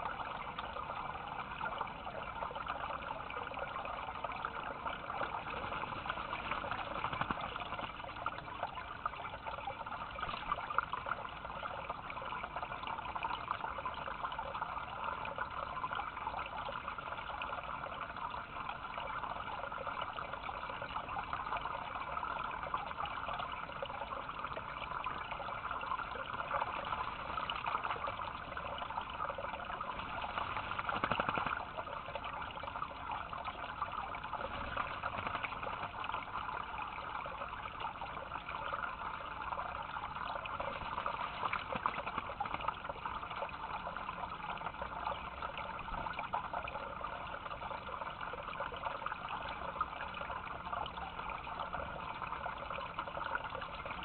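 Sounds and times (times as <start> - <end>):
water trickling into a dish: 0.0 - 54.0
water splash: 29.7 - 32.3.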